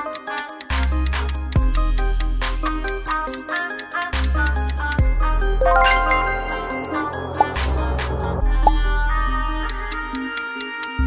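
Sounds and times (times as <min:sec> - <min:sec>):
rising chime notes: 0:05.6 - 0:08.4
background music: 0:05.6 - 0:08.8.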